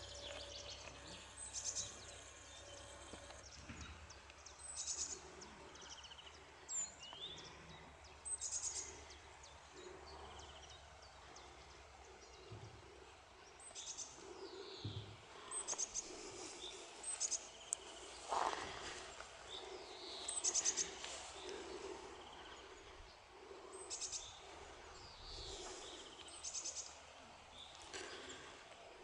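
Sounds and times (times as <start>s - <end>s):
bird chirps: 0.0s - 9.2s, 13.6s - 22.6s.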